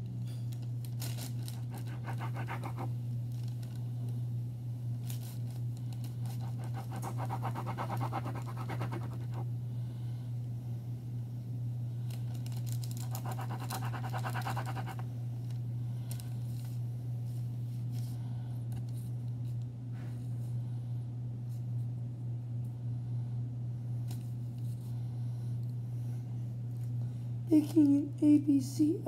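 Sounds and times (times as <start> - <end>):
knife sawing through dough: 1.6 - 2.9, 6.4 - 9.4, 13.1 - 15.0.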